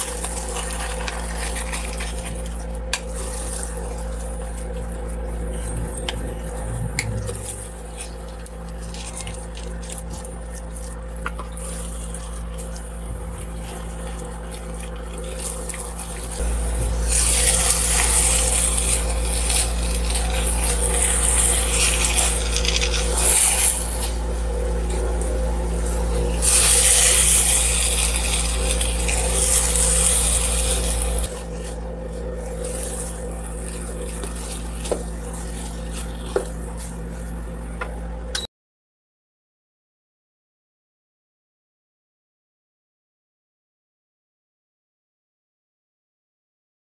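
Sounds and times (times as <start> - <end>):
spatula scraping rice in a pan: 0.0 - 24.2, 25.1 - 37.6
steady low hum: 0.0 - 38.5.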